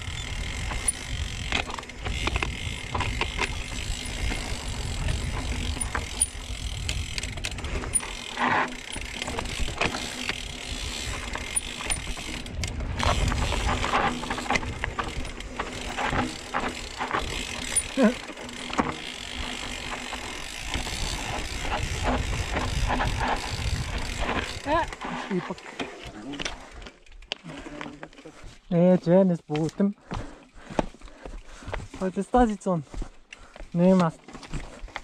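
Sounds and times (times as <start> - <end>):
bike freewheel ticking: 0.0 - 25.4
bike rattling and knocking: 0.0 - 28.4.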